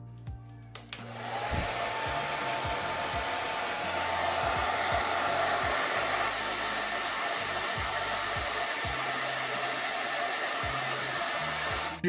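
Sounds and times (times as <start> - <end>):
hair dryer blowing: 0.9 - 12.0.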